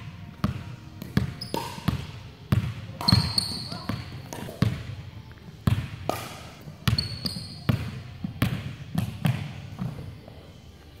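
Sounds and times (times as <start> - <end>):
sneaker squeak: 1.2 - 2.0, 3.0 - 4.1, 6.8 - 7.8.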